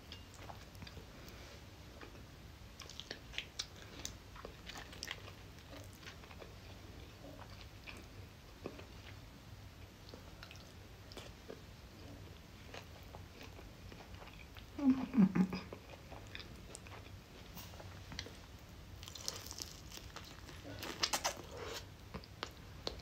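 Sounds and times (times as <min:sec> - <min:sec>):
person chewing food: 0:00.1 - 0:09.2, 0:09.8 - 0:14.8, 0:15.5 - 0:23.0
low voice hum: 0:14.7 - 0:15.8.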